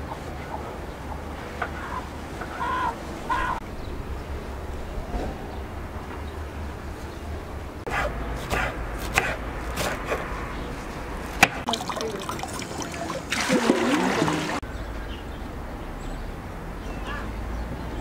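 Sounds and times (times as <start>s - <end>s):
knife chopping herbs on wooden board: 7.9s - 10.3s.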